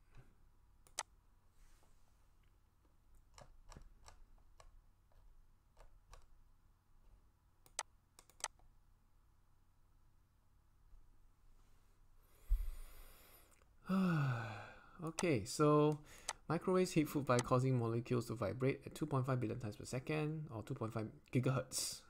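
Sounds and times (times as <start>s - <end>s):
computer mouse clicks: 0.8s - 1.1s, 3.2s - 4.8s, 5.7s - 6.3s, 7.6s - 8.6s.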